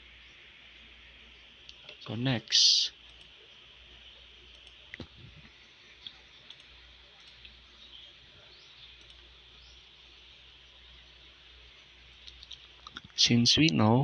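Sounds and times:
steady low hiss: 0.0s - 14.0s
faint clicks: 4.5s - 7.6s, 9.0s - 9.3s.

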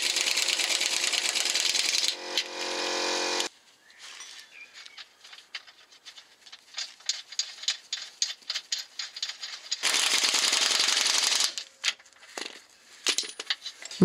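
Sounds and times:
power wrench running: 0.0s - 3.5s.

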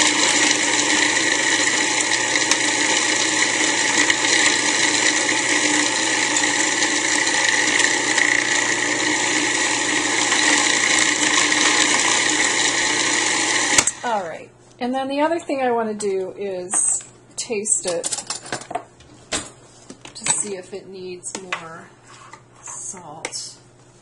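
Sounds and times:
food processor grinding: 0.0s - 14.2s.

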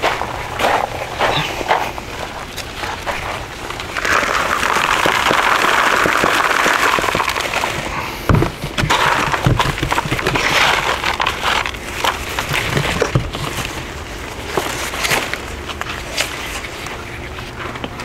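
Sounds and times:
potting mix pouring: 0.0s - 16.7s
knocks and rustles of potting mix: 0.0s - 18.0s.

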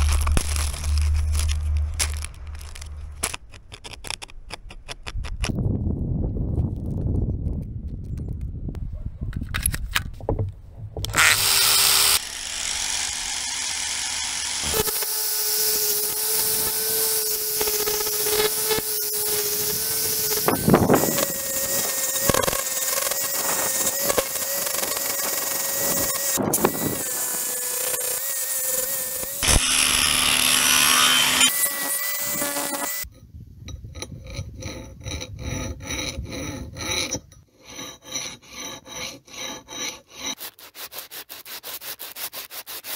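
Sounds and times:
angle grinder grinding steel: 0.0s - 5.5s, 11.0s - 33.1s, 34.0s - 42.9s
hand file scraping steel: 11.0s - 33.1s, 33.9s - 42.9s.

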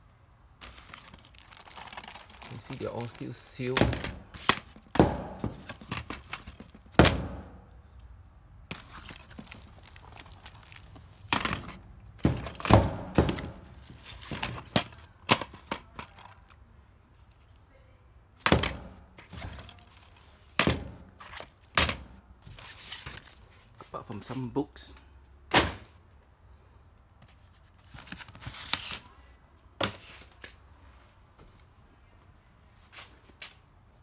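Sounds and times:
plastic cases clacking: 0.6s - 7.4s, 8.7s - 16.6s.

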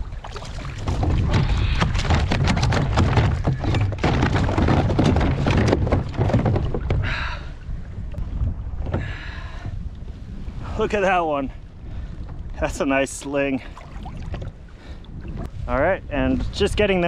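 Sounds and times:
wind rumble on microphone: 0.0s - 17.0s
fish knocking against hull: 0.3s - 7.3s.

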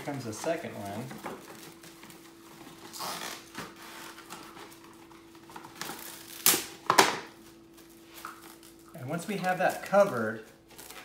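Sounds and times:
plastic cling wrap crinkling: 0.0s - 11.0s.

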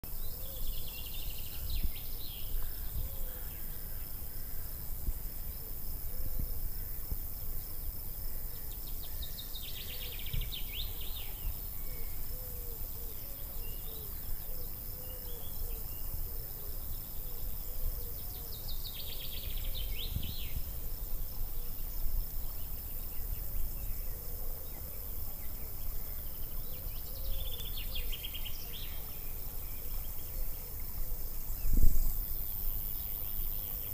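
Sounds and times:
songbird singing with trill: 0.1s - 4.0s, 8.5s - 30.8s
faint bird chirps: 21.5s - 32.0s.

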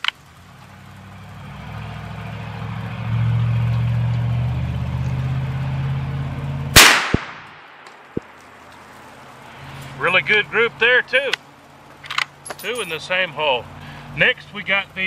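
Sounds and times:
rifle shot: 6.7s - 8.4s.

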